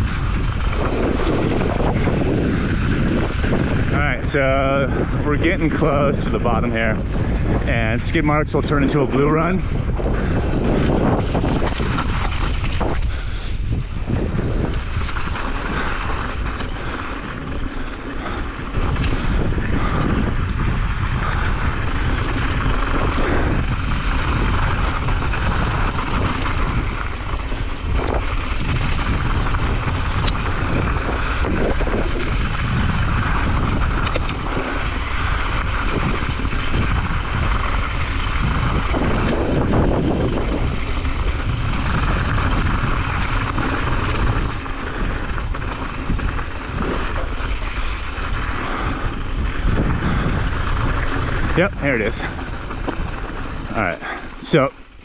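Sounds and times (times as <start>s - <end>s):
bike rattling: 0.0s - 55.0s
bike tyres crunching on gravel: 0.0s - 55.0s
wind on microphone: 0.0s - 55.0s.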